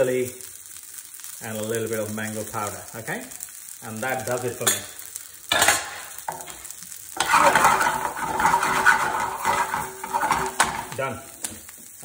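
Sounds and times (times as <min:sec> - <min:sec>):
vegetables sizzling in frying pan: 0:00.0 - 0:12.0
metal spoon stirring and scraping: 0:05.5 - 0:06.6, 0:07.2 - 0:11.0.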